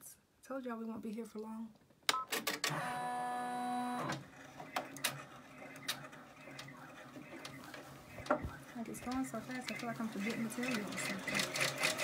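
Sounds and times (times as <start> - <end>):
embroidery machine stitching: 2.4 - 12.0
embroidery machine whine: 2.7 - 12.0.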